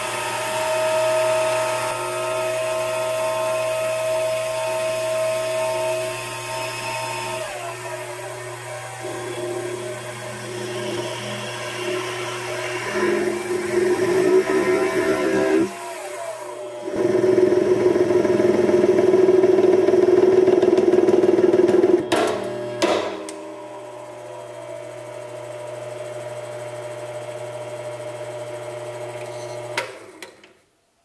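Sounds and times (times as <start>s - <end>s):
lathe cutting a bolt: 0.0s - 21.0s
lathe running hum: 0.0s - 30.1s
lathe spinning down: 0.0s - 30.1s.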